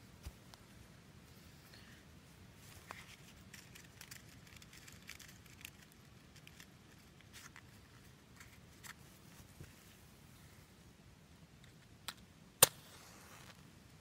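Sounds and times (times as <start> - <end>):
soft ticks and crackles: 2.7 - 9.8.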